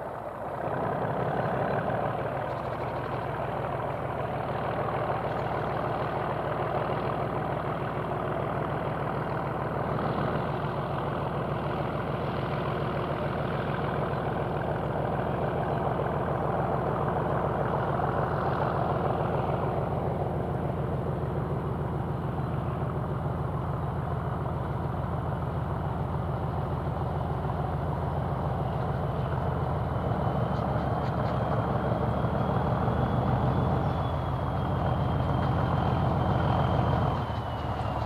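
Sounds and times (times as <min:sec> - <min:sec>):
diesel locomotive engine throbbing: 0:00.0 - 0:38.0
turbocharger whistle: 0:31.6 - 0:38.0.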